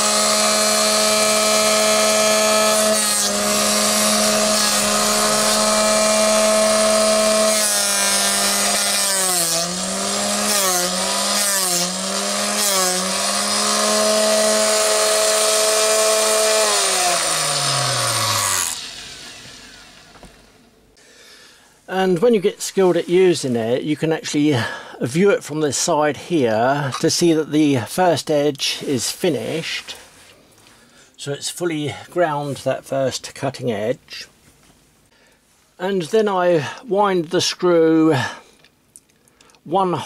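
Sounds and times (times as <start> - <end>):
motor winding down: 0.0 - 20.6
grinding wheel grinding drill: 0.0 - 20.7
motor humming: 0.0 - 20.7.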